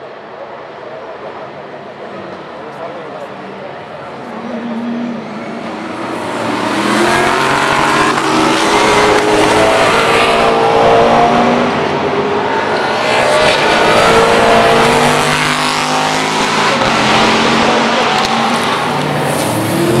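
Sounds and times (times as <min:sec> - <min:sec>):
race car engines: 0:00.0 - 0:20.0.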